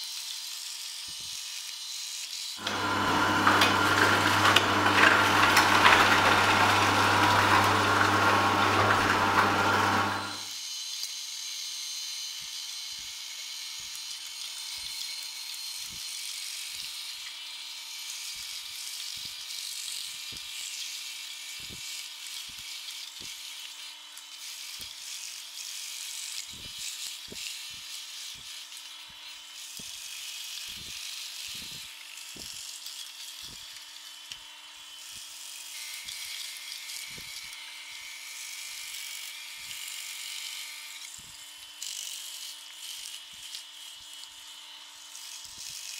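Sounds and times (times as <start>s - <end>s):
juicer motor hum and grinding: 2.6s - 10.6s.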